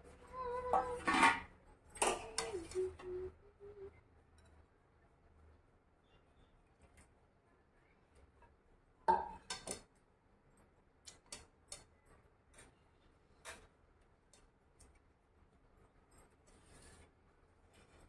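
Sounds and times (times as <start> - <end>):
kitchen utensils clinking: 0.6 - 2.9.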